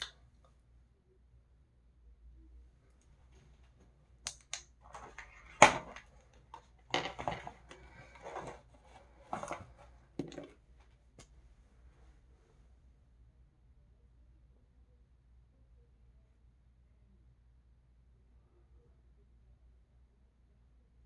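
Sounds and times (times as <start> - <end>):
plastic clatters: 4.4 - 10.5.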